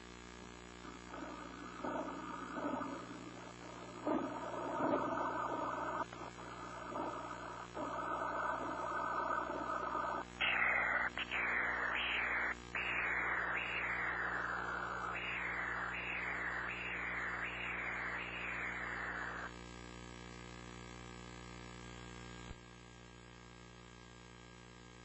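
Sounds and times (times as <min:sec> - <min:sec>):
faint hum: 0:00.0 - 0:20.3
doppler ultrasound blood flow whooshing: 0:00.8 - 0:19.5.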